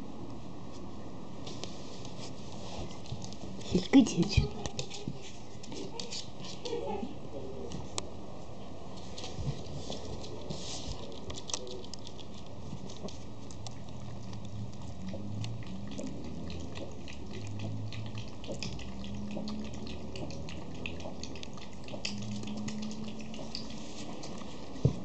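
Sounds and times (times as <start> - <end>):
puppy claws clicking on wooden floor: 3.0 - 6.8, 9.2 - 25.0.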